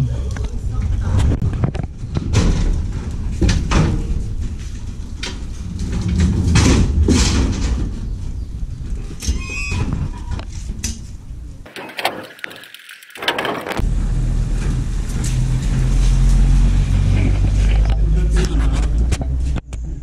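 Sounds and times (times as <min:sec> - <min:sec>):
pallet jack clanking on metal: 0:11.7 - 0:13.8.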